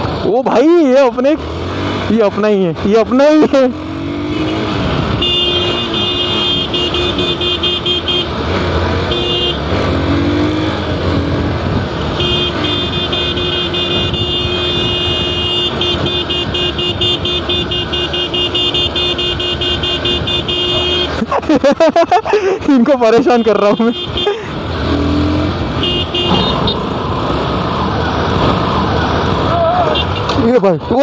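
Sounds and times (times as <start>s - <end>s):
motorcycle engine: 0.0s - 31.0s
motorcycle horn blasts: 4.3s - 8.3s, 9.1s - 9.6s, 12.1s - 21.2s, 25.8s - 26.8s.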